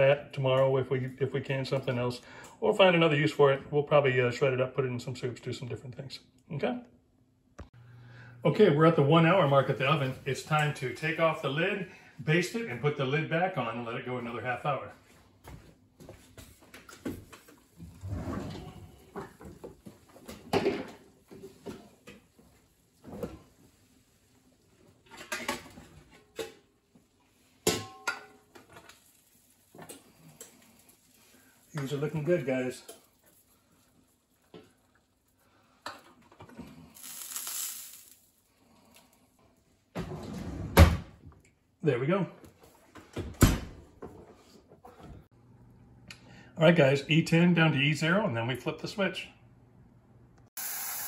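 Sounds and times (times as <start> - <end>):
juices hissing: 29.5 - 39.0, 50.6 - 51.0.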